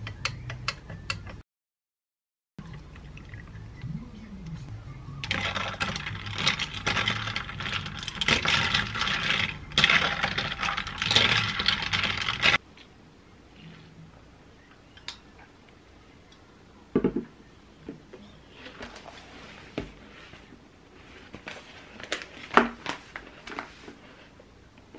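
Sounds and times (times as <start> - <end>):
ice cubes clinking in glass: 5.2 - 12.6.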